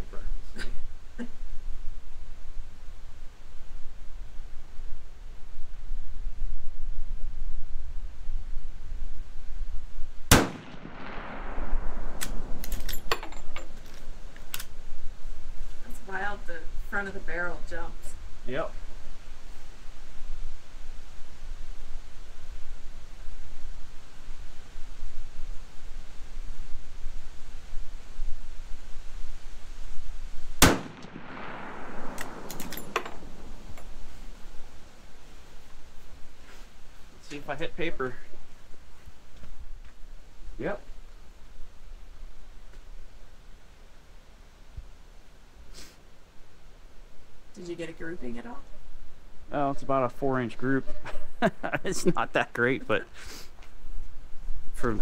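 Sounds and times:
rifle shot echoing: 10.3s - 13.2s, 30.6s - 34.1s
rifle lever metallic clicks: 12.2s - 14.7s, 32.2s - 33.8s.

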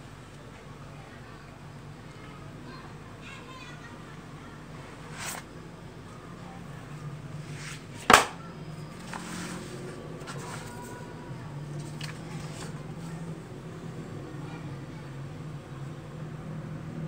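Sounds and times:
magazine slapping on floor: 8.0s - 8.4s
magazine pages rustling: 11.7s - 12.8s.

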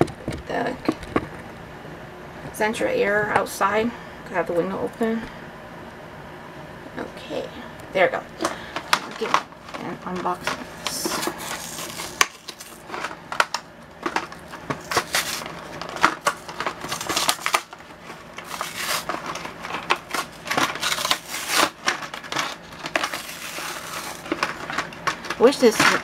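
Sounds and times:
blister packaging torn open: 10.8s - 25.3s.

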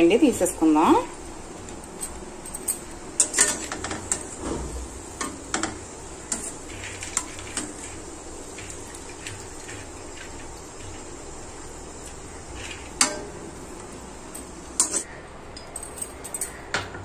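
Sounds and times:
steady low hiss: 0.0s - 17.0s
skimmer tapping steel pan: 12.9s - 13.6s.

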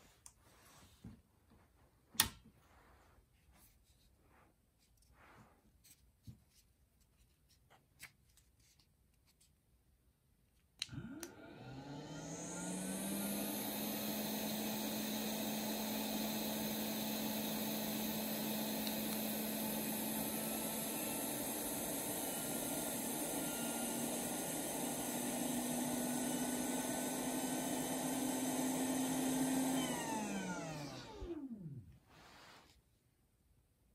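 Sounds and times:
fan spinning down whine: 11.0s - 32.0s.

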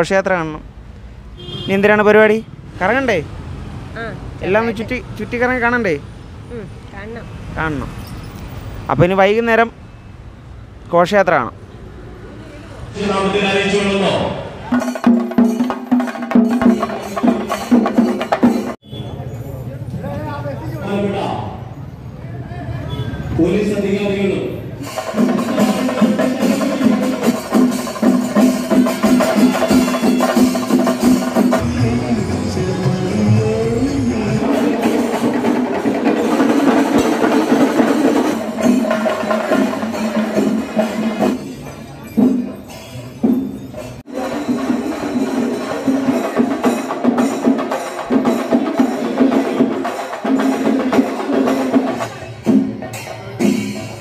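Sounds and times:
rapid dense drum strokes: 24.9s - 32.6s, 34.2s - 54.0s.

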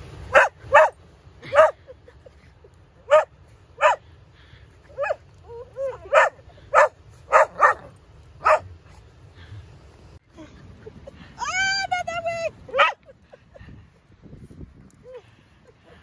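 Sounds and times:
dog barking: 0.3s - 1.8s, 3.1s - 4.0s, 6.1s - 8.7s, 12.7s - 13.0s.

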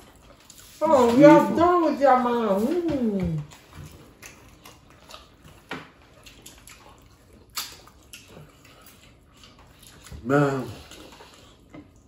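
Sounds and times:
wet chewing smacks: 3.0s - 12.0s.

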